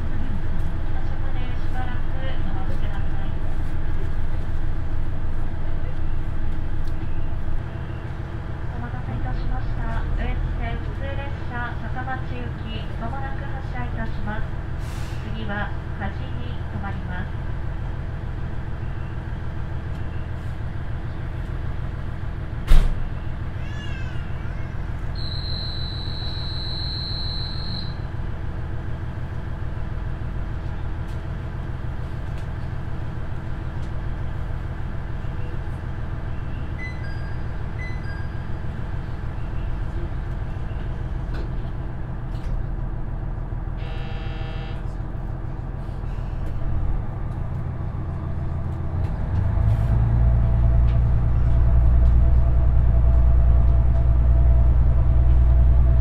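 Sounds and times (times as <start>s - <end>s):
short beeps: 25.2s - 28.1s, 36.8s - 38.5s
brief buzz: 43.8s - 44.8s.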